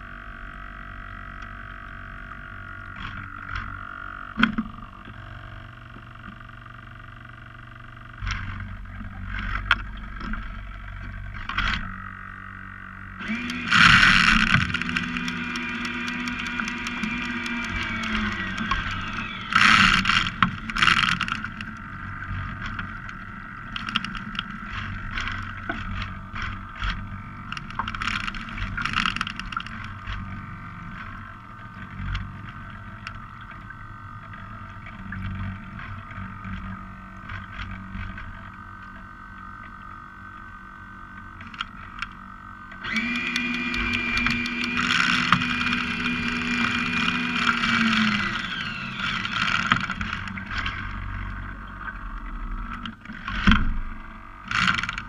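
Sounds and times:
engine-like hum: 0.0s - 55.0s
water slapping against hull: 13.2s - 55.0s.

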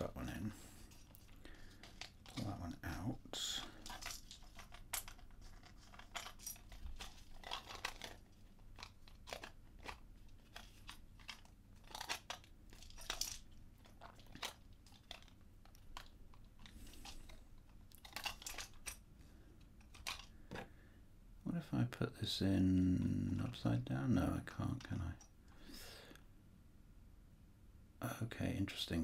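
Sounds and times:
plastic puzzle box clicks and scrapes: 0.9s - 3.0s, 3.6s - 19.0s, 19.7s - 20.7s.

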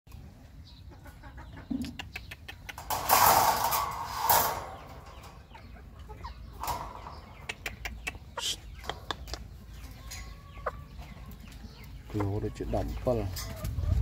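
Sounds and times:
chicken clucking low: 0.4s - 2.9s, 7.2s - 14.0s
loud rustling: 2.8s - 5.4s.

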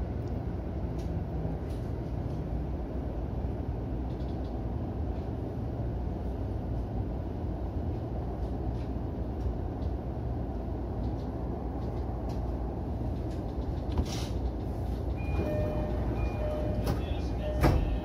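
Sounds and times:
train running rumble: 0.0s - 18.0s
electronic door chime: 15.2s - 18.0s.

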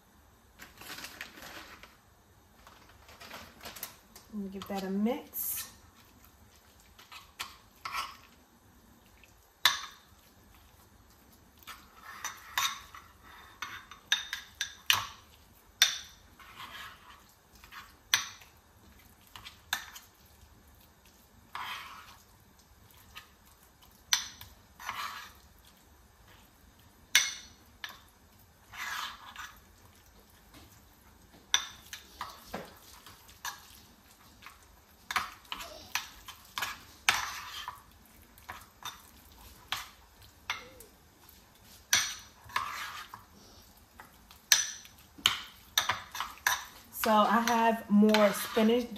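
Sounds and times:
fork scraping a bowl: 7.0s - 8.3s, 11.6s - 15.0s, 15.8s - 18.2s, 21.5s - 22.3s, 24.1s - 25.5s, 28.6s - 29.7s, 34.4s - 40.8s, 41.6s - 43.4s.

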